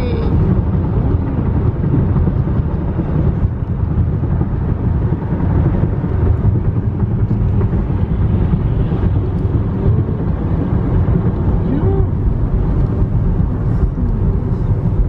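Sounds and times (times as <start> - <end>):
car cabin road and wind noise: 0.0 - 15.0.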